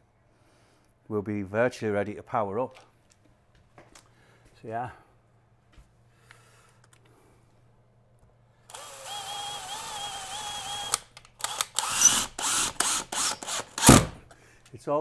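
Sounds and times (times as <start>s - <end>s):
cordless drill driving screw: 8.7s - 14.2s.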